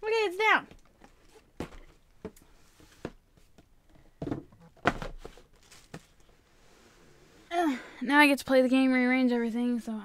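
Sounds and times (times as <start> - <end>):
objects knocking and thudding: 0.7 - 6.2
rustling: 1.0 - 7.5.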